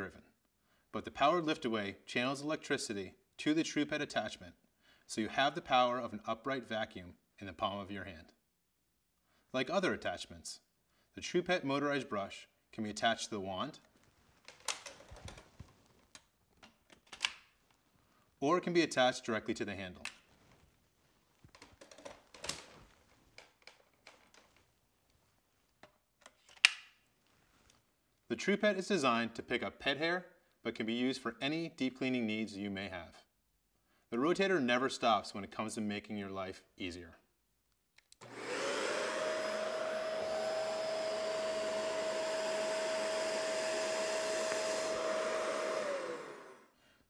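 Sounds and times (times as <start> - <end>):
plastic clicks and rattles: 14.4 - 17.4, 21.5 - 24.6
vacuum cleaner motor whine: 38.2 - 46.7.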